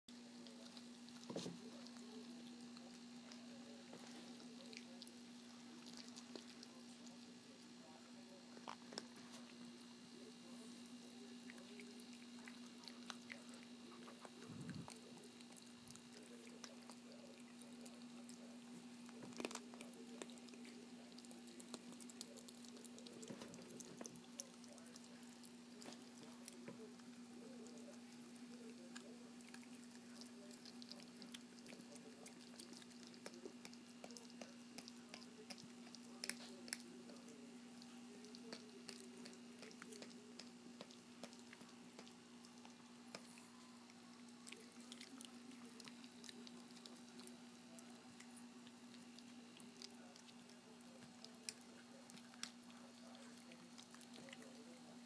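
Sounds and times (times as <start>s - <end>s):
steady low hum: 0.1s - 55.0s
dog chewing bone: 11.4s - 55.0s.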